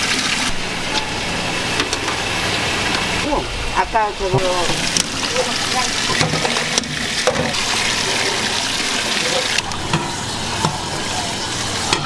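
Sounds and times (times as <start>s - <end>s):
tap water pouring into sink: 4.3s - 12.0s.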